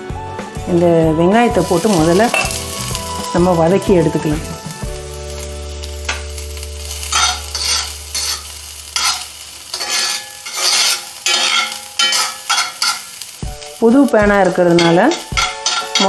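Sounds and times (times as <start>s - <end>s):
onions sizzling in a skillet: 0.0s - 16.0s
metal spatula scraping skillet: 6.9s - 13.4s, 14.6s - 16.0s.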